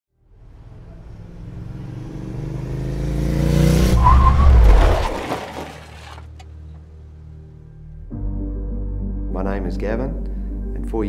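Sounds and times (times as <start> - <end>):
motorcycle engine approaching: 0.2 - 4.0
tire squeal and skid: 3.8 - 6.4.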